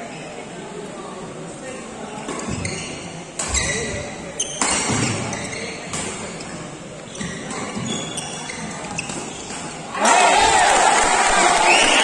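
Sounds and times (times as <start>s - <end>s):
murmur of spectators: 0.0s - 12.0s.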